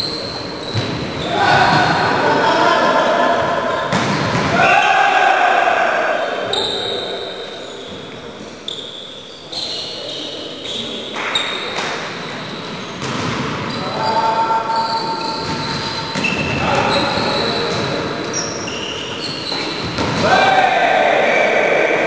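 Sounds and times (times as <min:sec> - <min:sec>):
sneakers squeaking on court: 0:00.0 - 0:02.1, 0:03.4 - 0:04.6, 0:06.4 - 0:20.3
volleyball struck with thuds: 0:03.9 - 0:04.7.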